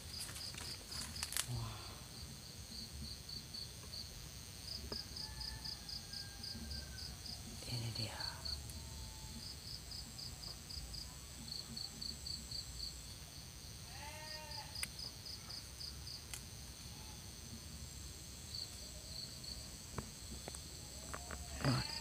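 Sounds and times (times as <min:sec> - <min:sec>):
insects chirping: 0:00.0 - 0:22.0
thin high buzz: 0:11.8 - 0:22.0.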